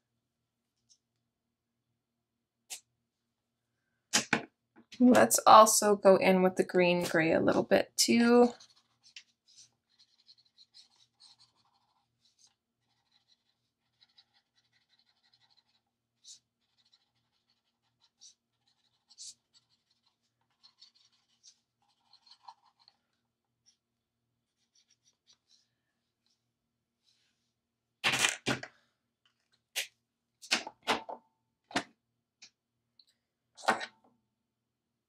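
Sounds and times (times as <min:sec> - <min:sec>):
marker scratching on paper: 0:08.4 - 0:23.0, 0:23.6 - 0:23.8, 0:24.4 - 0:26.4.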